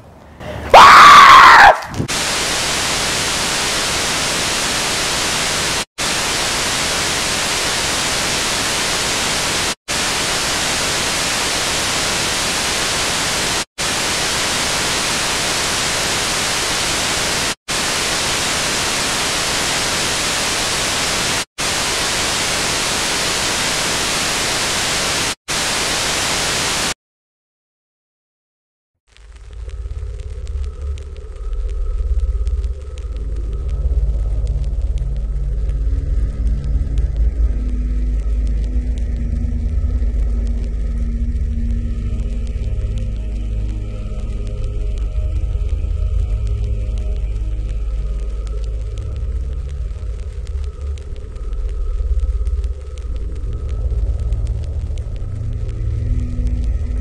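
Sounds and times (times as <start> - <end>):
high-pitched shriek: 0.7 - 2.9
video tape static hiss: 1.4 - 27.0, 29.1 - 57.0.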